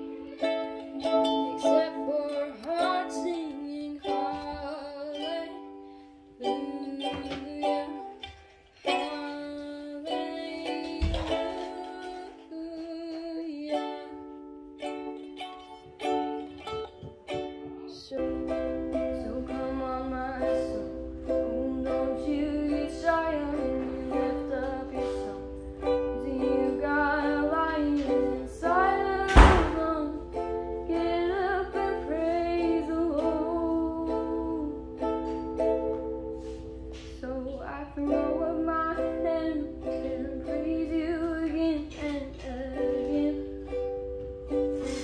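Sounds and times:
ukulele chords: 0.0s - 45.0s
voices singing: 18.0s - 30.2s
sharp knock: 29.3s - 29.9s.

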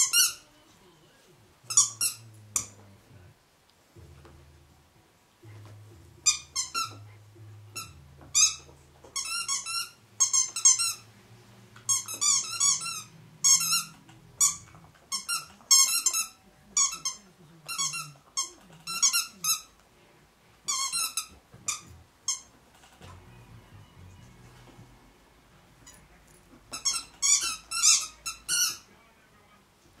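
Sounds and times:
rubber squeaky toy squeaking: 0.0s - 0.4s, 1.7s - 2.8s, 6.2s - 7.0s, 7.7s - 11.1s, 11.9s - 19.7s, 20.7s - 22.6s, 26.7s - 28.9s
puppy chewing toy: 1.6s - 3.2s, 5.8s - 19.8s, 20.6s - 23.2s, 25.8s - 28.9s.

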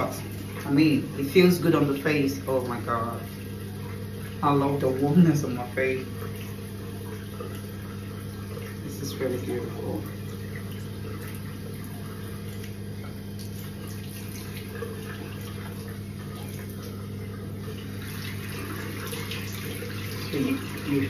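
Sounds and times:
steady low hum: 0.0s - 21.0s
water splashing: 0.0s - 21.0s.

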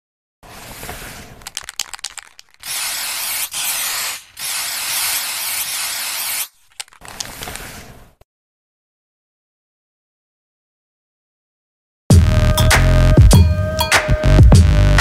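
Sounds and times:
spray can hissing: 0.5s - 7.5s
spray can clicks: 1.4s - 7.6s.

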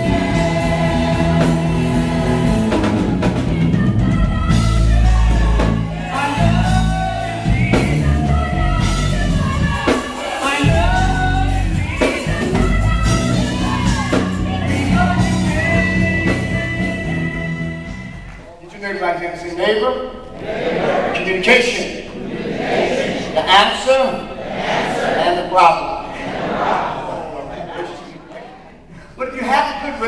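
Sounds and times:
heavy bass line: 0.0s - 10.0s, 10.6s - 18.2s
backing vocalists: 0.0s - 18.5s, 20.2s - 29.2s
gospel band accompaniment: 0.0s - 18.7s, 19.3s - 30.0s
male lead singer: 3.6s - 17.9s.

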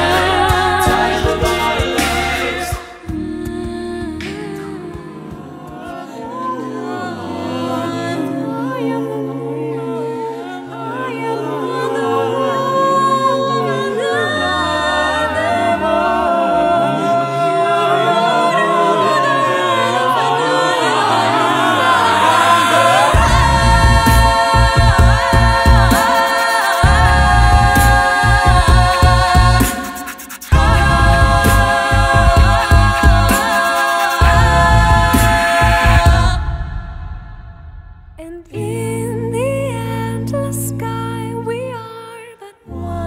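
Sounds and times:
deep pulsing beat: 0.0s - 5.8s, 23.0s - 39.5s
a cappella group singing: 0.0s - 43.0s.

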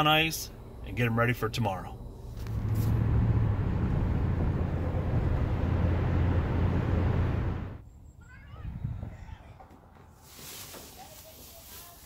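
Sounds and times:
truck cabin road drone: 0.0s - 7.8s.

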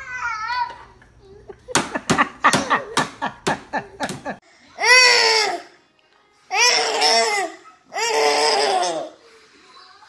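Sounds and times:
baby crying: 6.5s - 9.2s.

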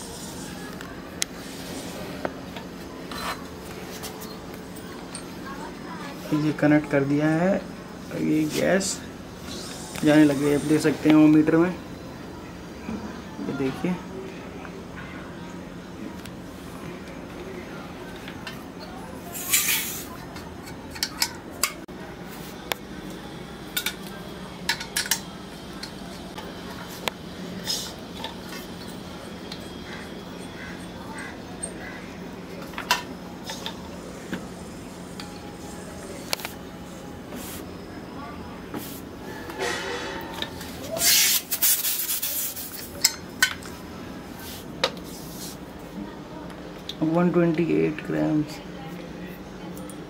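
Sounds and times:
refrigerant gas hissing: 8.3s - 11.6s, 40.6s - 43.2s.

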